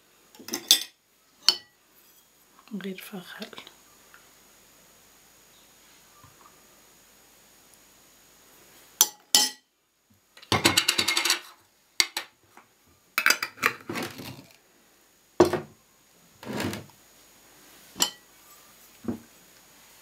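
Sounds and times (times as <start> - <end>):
glass jars clinking: 0.4 - 1.7, 9.0 - 9.6, 10.5 - 12.2, 13.2 - 14.5, 18.0 - 18.2.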